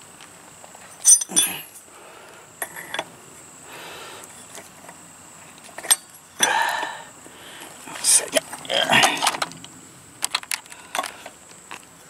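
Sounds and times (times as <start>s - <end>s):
wrench clinking on spark plug: 1.0s - 1.7s.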